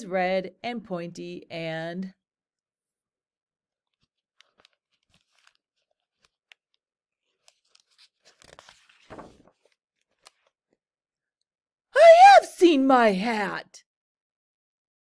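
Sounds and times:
paper page turning: 3.8 - 10.8.

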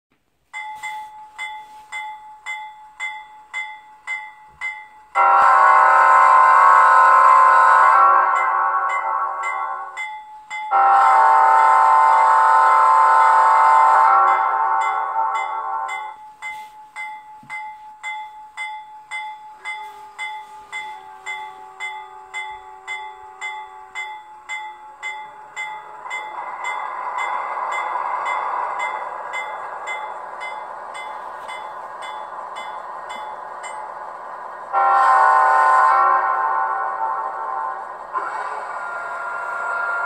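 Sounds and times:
locomotive bell ringing: 0.5 - 40.0
steady low tone: 14.3 - 35.5.

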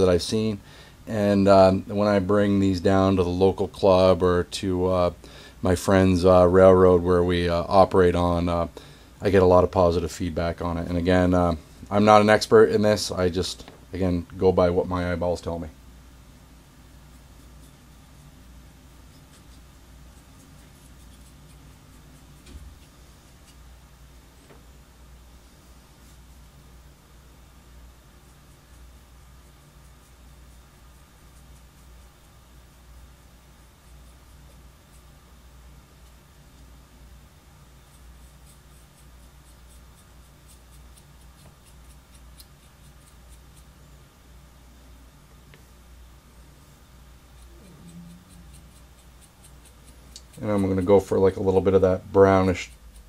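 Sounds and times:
low steady hum: 0.0 - 53.0
paintbrush scratching and ticking: 16.9 - 23.7, 28.1 - 35.2, 37.6 - 43.8, 46.6 - 53.0.

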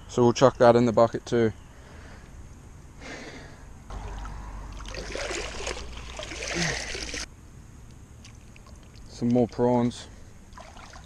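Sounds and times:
feet wading through water: 3.9 - 7.3, 10.4 - 11.0.

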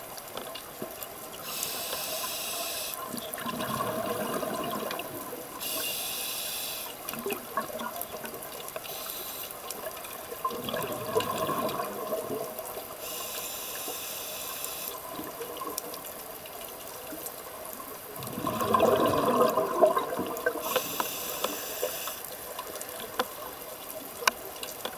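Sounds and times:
regulator inhalation hiss: 1.4 - 3.0, 5.6 - 7.0, 8.8 - 9.6, 13.0 - 15.0, 20.6 - 22.4
exhaled bubbles gurgling underwater: 1.4 - 5.9, 7.0 - 8.8, 9.7 - 13.2, 15.0 - 24.6.

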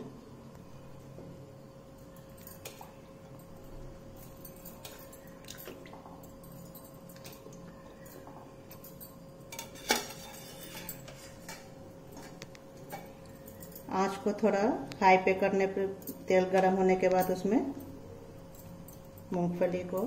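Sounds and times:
faint steady hum: 0.0 - 20.0
steel utensils clinking on pan: 9.5 - 11.7.

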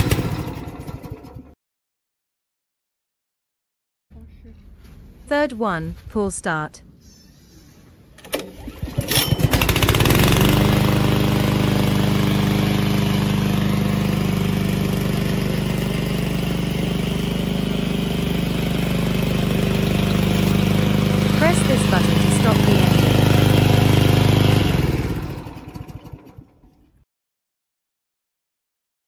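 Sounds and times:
mower engine running steadily: 0.0 - 1.5, 8.2 - 26.9
recoil starter pull: 8.2 - 11.1, 22.6 - 27.0.

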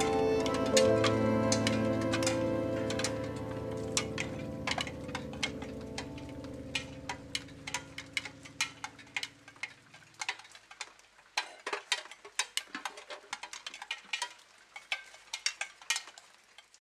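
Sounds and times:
held music notes: 0.0 - 10.3
raindrops ticking and tapping: 0.0 - 16.8.

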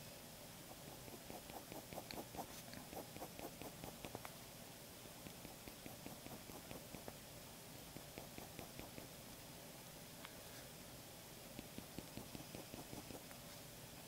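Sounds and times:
pen scratching on paper: 0.9 - 4.2, 11.6 - 13.2.

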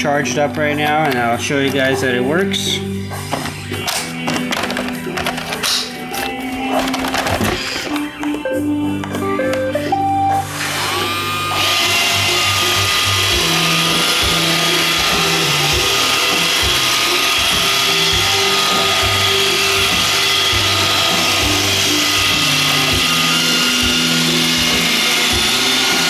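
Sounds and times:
robot vacuum whine and brush noise: 10.4 - 26.0.

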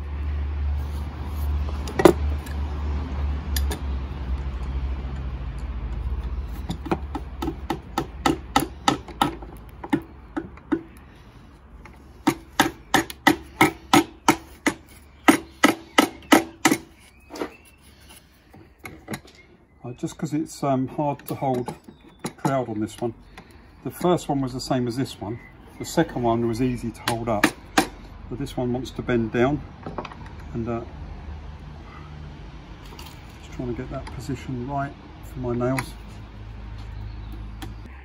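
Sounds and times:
hammer striking wood: 6.8 - 10.9, 12.2 - 16.9, 27.0 - 28.0.

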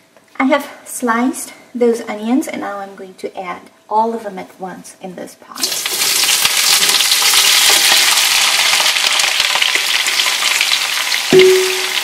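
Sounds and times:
onions sizzling in oil: 5.6 - 12.0.

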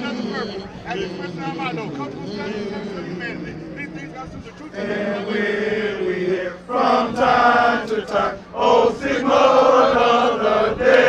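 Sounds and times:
group chanting in unison: 0.0 - 11.0.

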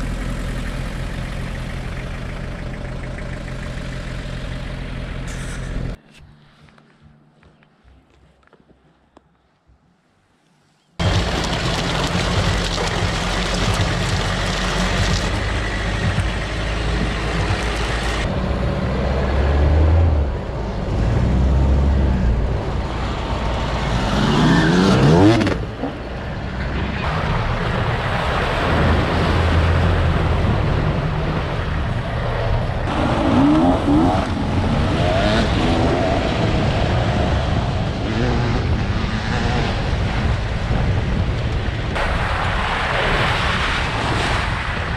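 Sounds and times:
pickup engine running under load: 0.0 - 6.0, 11.0 - 23.8
tyre noise on gravel: 11.0 - 16.4.

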